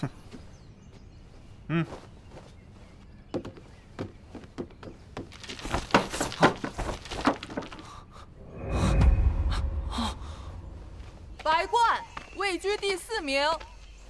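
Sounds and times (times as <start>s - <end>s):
low rumble: 8.4s - 12.4s.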